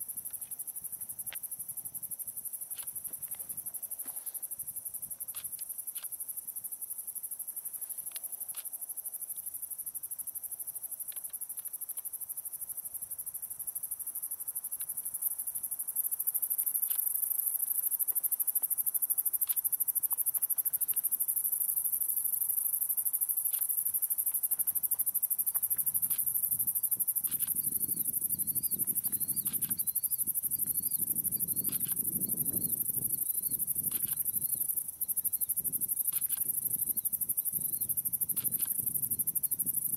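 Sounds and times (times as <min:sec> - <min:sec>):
night insects chorus: 0:00.0 - 0:39.9
fast insect chirping: 0:13.5 - 0:39.9.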